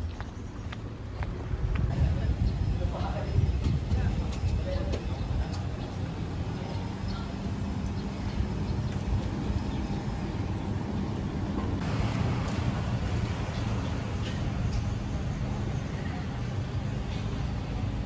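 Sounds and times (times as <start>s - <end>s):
traffic rumble: 0.0s - 18.0s
wind on microphone: 1.2s - 6.5s.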